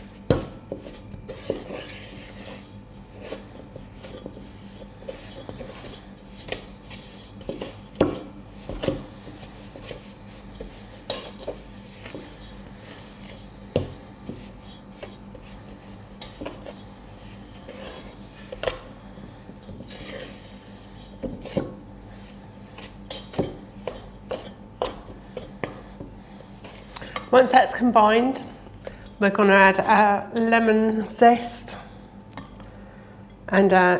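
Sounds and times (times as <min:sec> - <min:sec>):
wooden spoon scraping metal bowl: 0:00.7 - 0:13.6, 0:14.2 - 0:18.9, 0:19.7 - 0:21.8.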